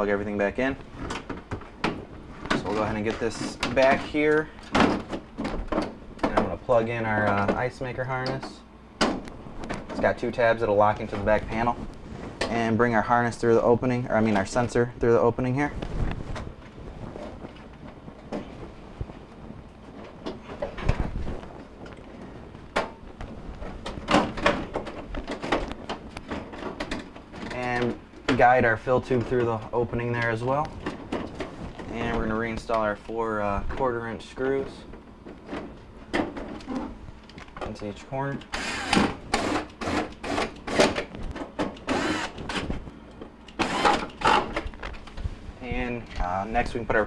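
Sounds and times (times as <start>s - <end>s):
cordless drill driving screws: 38.5s - 40.9s, 41.9s - 42.6s, 43.6s - 44.5s.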